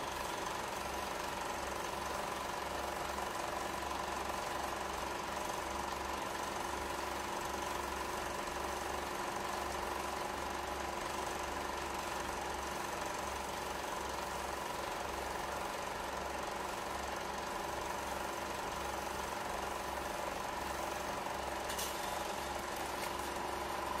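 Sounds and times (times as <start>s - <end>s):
film projector clatter: 0.0s - 24.0s
projector hum: 18.9s - 24.0s.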